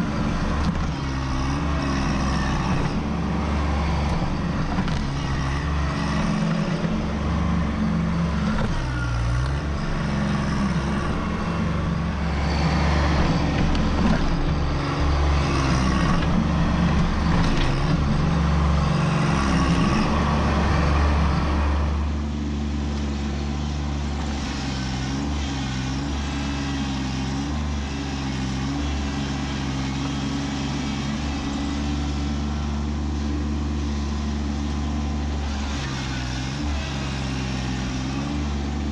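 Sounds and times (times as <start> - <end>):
tractor diesel engine under load: 0.0 - 38.9.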